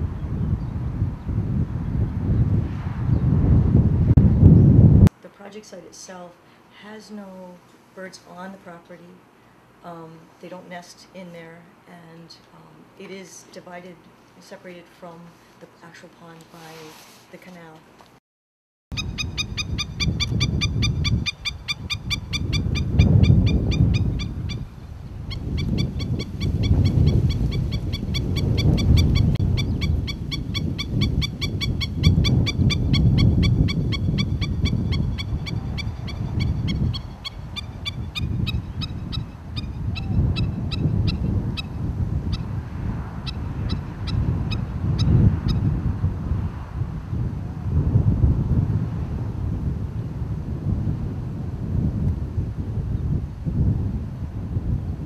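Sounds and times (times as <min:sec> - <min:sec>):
wind noise on microphone: 0:00.0 - 0:05.2, 0:18.9 - 0:55.0
bird giving sharp repeated calls: 0:18.9 - 0:42.4.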